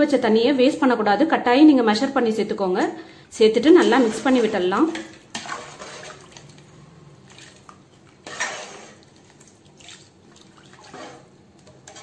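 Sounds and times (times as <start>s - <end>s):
liquid sloshing in a pot: 3.8s - 12.0s.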